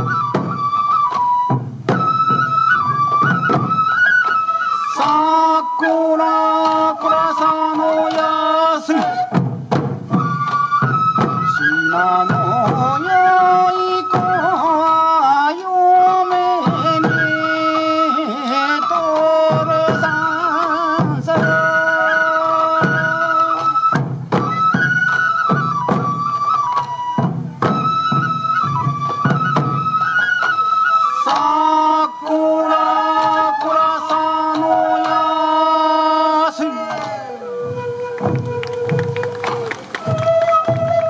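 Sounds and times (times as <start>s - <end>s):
bamboo flutes playing a melody: 0.0s - 41.0s
taiko drum strikes: 9.3s - 11.5s.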